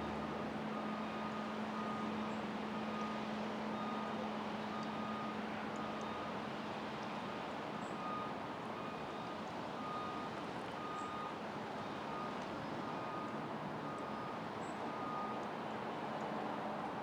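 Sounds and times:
vehicle reversing alarm beeping: 0:00.0 - 0:06.4, 0:07.8 - 0:15.5
engine and traffic hum: 0:00.0 - 0:17.0.

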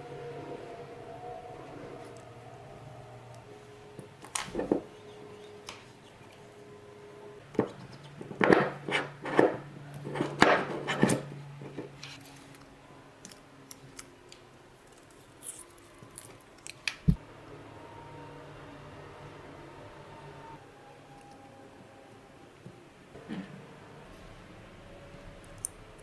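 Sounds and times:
small metal parts clicking: 0:13.2 - 0:17.0.

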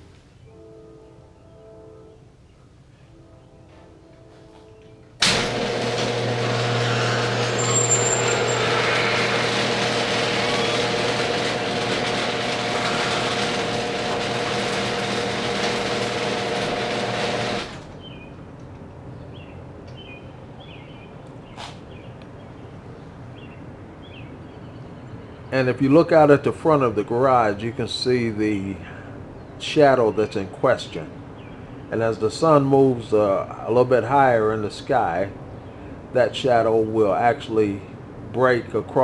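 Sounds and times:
garage door motor humming: 0:05.1 - 0:18.4
garage door travelling up: 0:05.2 - 0:18.1.

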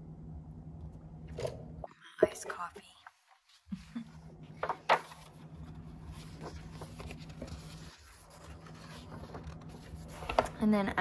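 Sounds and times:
steady low hum: 0:00.0 - 0:11.0
paper pages rustling: 0:03.2 - 0:10.7.

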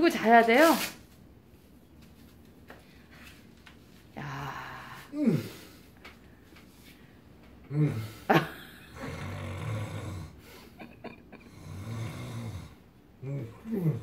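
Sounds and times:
man snorting: 0:05.0 - 0:05.9, 0:07.7 - 0:14.0
man groaning: 0:05.1 - 0:05.7, 0:07.7 - 0:08.3, 0:13.2 - 0:14.0
man snoring: 0:07.7 - 0:08.3, 0:08.9 - 0:10.6, 0:11.4 - 0:14.0.

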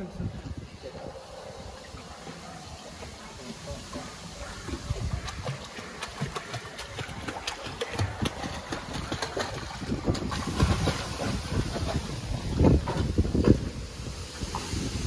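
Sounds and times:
wind rumble on microphone: 0:00.0 - 0:02.0, 0:04.5 - 0:05.8, 0:07.0 - 0:15.0
dog splashing in pool water: 0:00.8 - 0:15.0.

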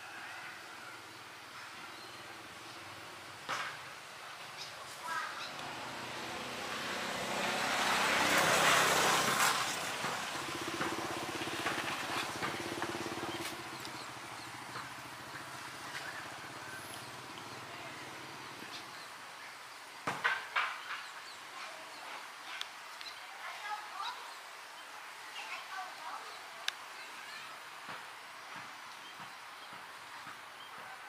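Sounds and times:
motor vehicle passing: 0:01.8 - 0:19.0.

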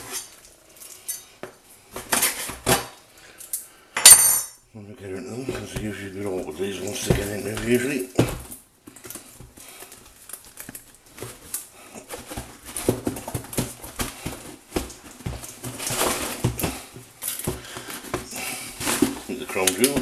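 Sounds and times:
cardboard box handled with gloves: 0:05.3 - 0:20.0.

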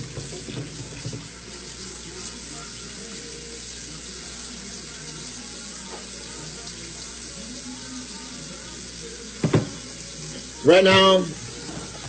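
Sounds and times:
tap water splashing into sink: 0:00.0 - 0:01.4, 0:09.3 - 0:10.0.

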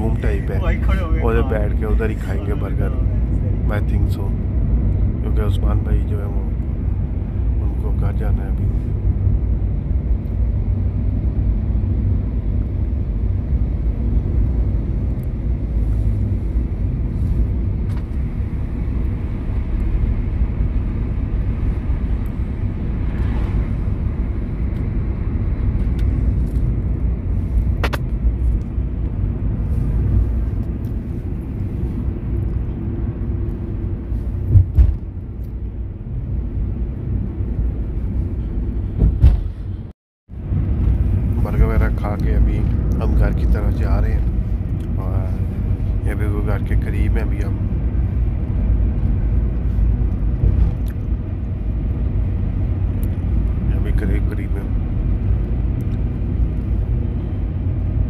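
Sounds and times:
car road and engine rumble: 0:00.0 - 0:58.0
loud brief thump: 0:34.5 - 0:35.1, 0:39.0 - 0:39.7.

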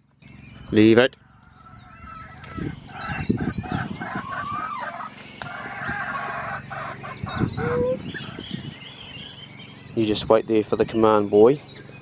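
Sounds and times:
small birds chirping faintly: 0:00.0 - 0:12.0
chickens clucking: 0:01.2 - 0:08.7
rooster crowing: 0:03.8 - 0:08.0.

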